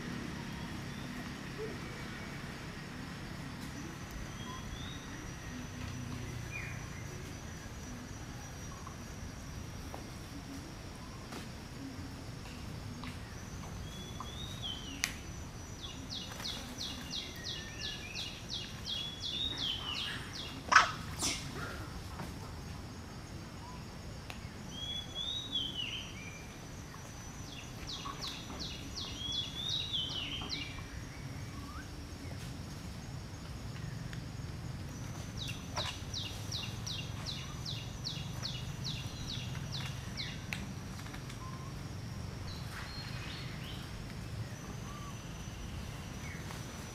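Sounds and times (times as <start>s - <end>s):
bird chirps: 3.8s - 7.2s, 13.8s - 15.1s, 15.8s - 21.7s, 27.4s - 32.0s.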